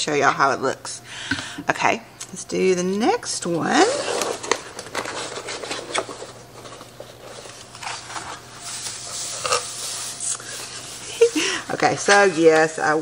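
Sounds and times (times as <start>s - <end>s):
paper packing rustling: 3.8s - 11.4s.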